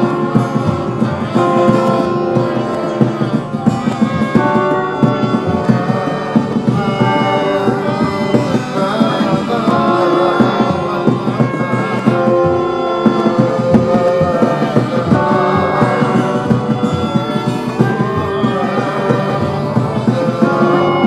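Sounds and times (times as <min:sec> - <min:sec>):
irregular percussive hits: 0:00.0 - 0:21.0.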